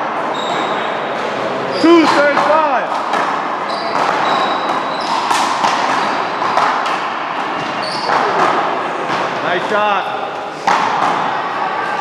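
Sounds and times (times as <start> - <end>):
sneaker squeaks: 0.2 - 8.7.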